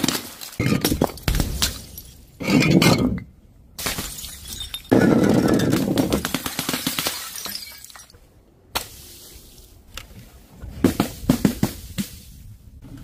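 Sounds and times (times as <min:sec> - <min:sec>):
bottles breaking: 0:00.0 - 0:03.2, 0:03.8 - 0:08.2
glass fragments clinking: 0:04.1 - 0:05.0, 0:07.1 - 0:08.2.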